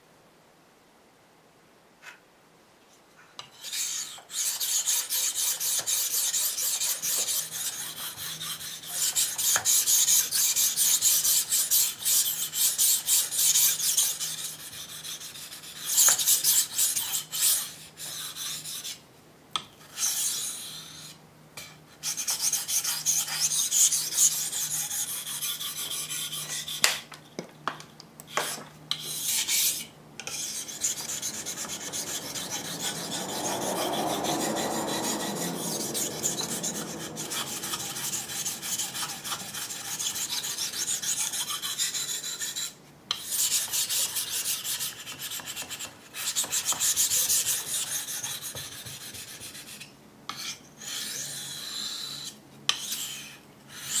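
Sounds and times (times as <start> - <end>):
knife scraping on whetstone: 3.4 - 19.0, 19.8 - 27.1, 28.3 - 54.0.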